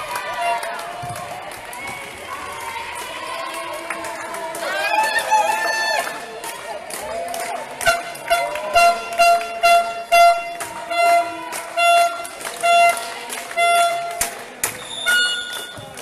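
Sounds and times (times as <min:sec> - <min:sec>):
horn blasts: 0:07.8 - 0:15.9.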